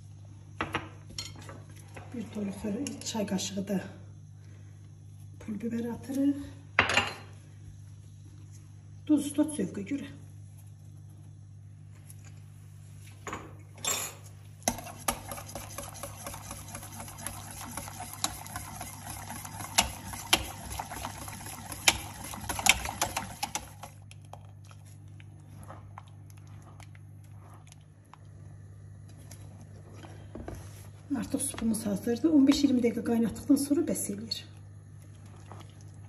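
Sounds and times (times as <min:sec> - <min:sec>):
steady low hum: 0:00.0 - 0:36.0
spatula stirring soup: 0:14.3 - 0:28.3, 0:35.0 - 0:36.0
whisk clinking against pot: 0:14.7 - 0:23.9.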